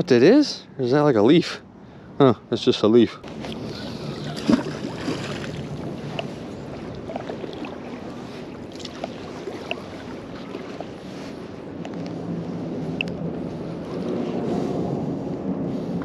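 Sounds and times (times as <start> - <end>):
shallow water washing: 3.2 - 15.2
wind on microphone: 3.2 - 16.0
faint ticks: 13.0 - 13.2.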